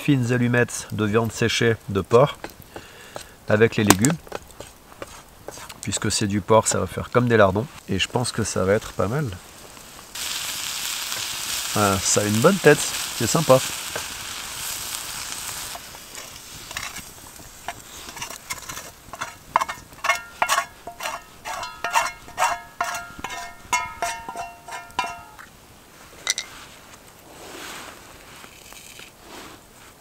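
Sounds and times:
vegetables sizzling faintly: 0.0s - 25.4s
spoon clanking on metal pan: 17.7s - 25.5s.

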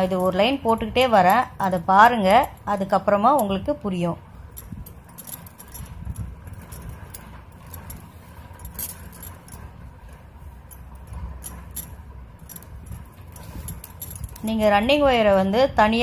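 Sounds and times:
plastic strands clicking and rustling: 4.4s - 14.7s.

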